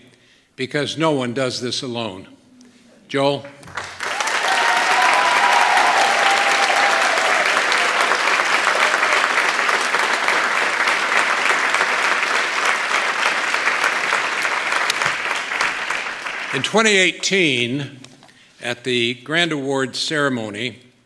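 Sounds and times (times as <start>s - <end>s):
audience applauding: 3.6s - 17.1s.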